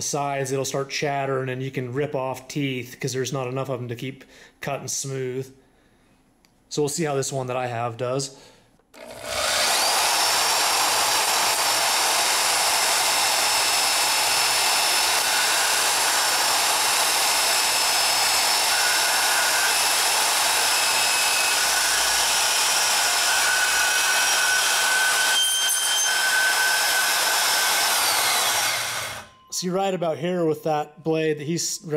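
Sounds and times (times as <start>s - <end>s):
bandsaw cutting metal: 9.0s - 29.6s
high squeal of saw blade: 18.3s - 19.7s, 21.2s - 29.6s.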